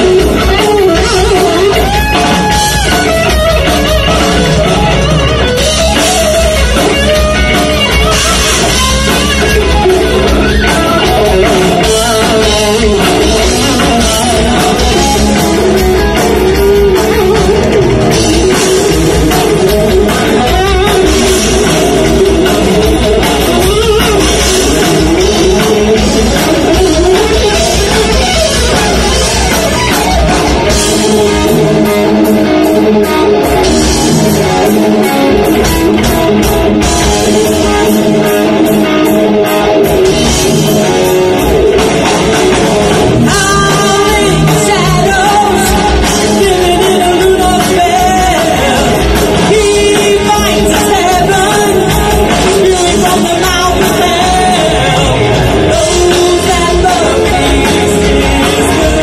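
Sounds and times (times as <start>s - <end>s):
rock band playing: 0.0s - 59.0s
person singing lead vocal: 10.5s - 28.2s, 43.2s - 59.0s.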